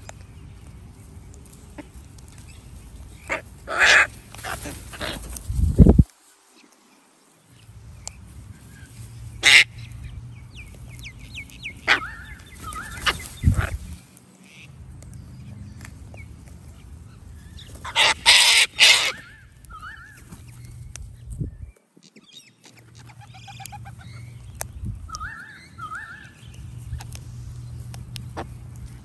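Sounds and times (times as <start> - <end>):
cockatoos screeching: 3.2 - 5.4, 11.8 - 13.8, 17.6 - 20.5, 25.1 - 26.4
high bird chirps: 9.8 - 13.5, 21.6 - 27.9.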